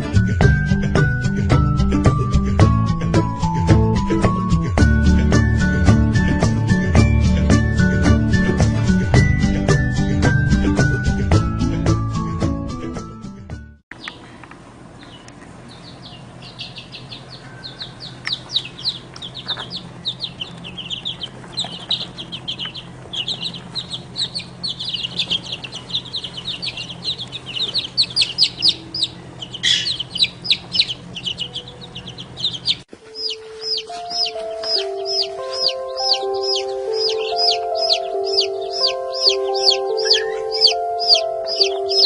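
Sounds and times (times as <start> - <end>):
background music: 0.0 - 13.8, 33.0 - 42.0
baby birds cheeping: 13.9 - 42.0
low steady hum: 13.9 - 42.0
single chick peeps: 15.0 - 42.0.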